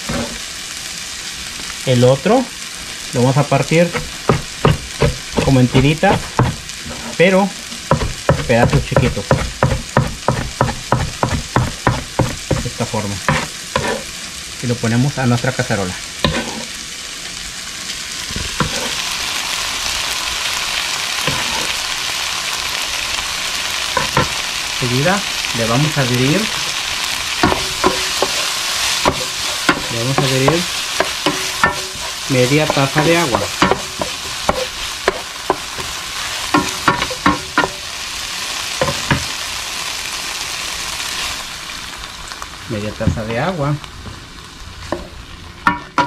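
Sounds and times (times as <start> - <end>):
vegetables sizzling in a skillet: 0.0 - 46.0
wooden spoon knocking on pan: 3.9 - 6.6, 7.9 - 12.7, 24.0 - 24.4, 27.4 - 28.4, 29.0 - 35.9, 36.5 - 37.8, 38.8 - 39.3, 43.0 - 43.3.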